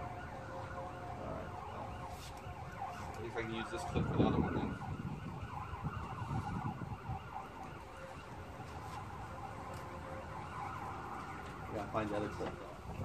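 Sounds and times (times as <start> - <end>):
faint wavering siren: 0.0 - 13.0
handling and rustling noises: 1.8 - 4.0, 7.5 - 10.4.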